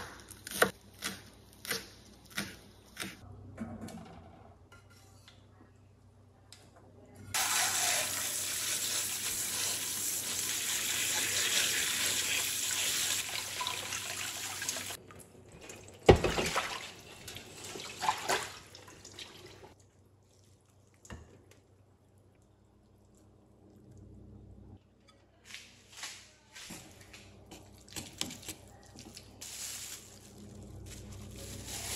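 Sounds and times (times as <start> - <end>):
tap water running: 7.4 - 19.8.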